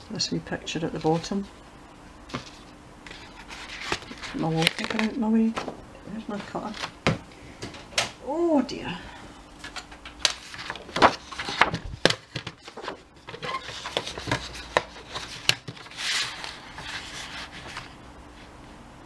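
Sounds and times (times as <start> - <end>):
paper sliding scrape: 2.3 - 5.0, 12.6 - 18.5
book page rustling: 2.3 - 5.7, 9.6 - 18.0.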